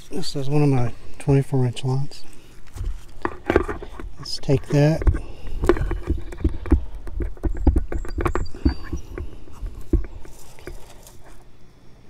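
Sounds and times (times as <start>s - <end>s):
tubing handling noises: 2.1s - 11.5s.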